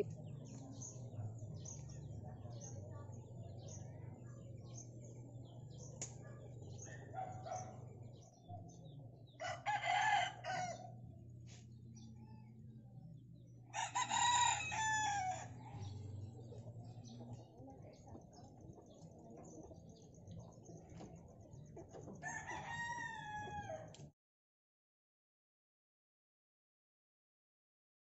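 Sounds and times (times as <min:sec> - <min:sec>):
small birds chirping: 0:00.0 - 0:09.5, 0:11.4 - 0:23.9
rooster crowing: 0:09.4 - 0:10.9, 0:13.7 - 0:15.8, 0:22.2 - 0:23.9.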